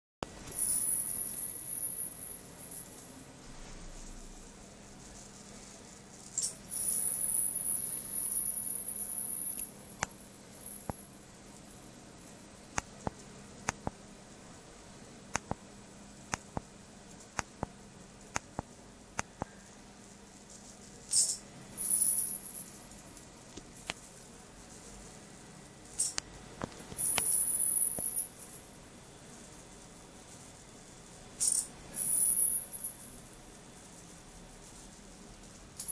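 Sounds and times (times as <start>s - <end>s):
high-pitched electrical whine: 0.2s - 35.9s
sharp spark clicks: 15.3s - 15.7s, 16.3s - 19.6s.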